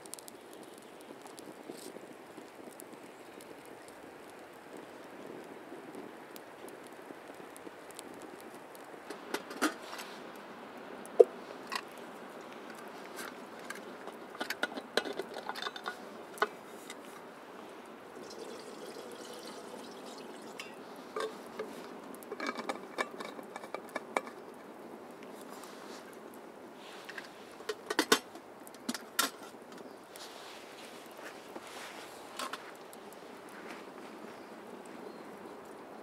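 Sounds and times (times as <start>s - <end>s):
campfire crackling and popping: 0.0s - 36.0s
liquid pouring: 18.1s - 21.4s.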